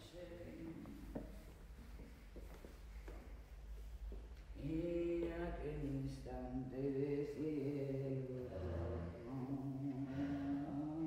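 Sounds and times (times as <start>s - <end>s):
slow chant-like singing: 4.5s - 11.0s.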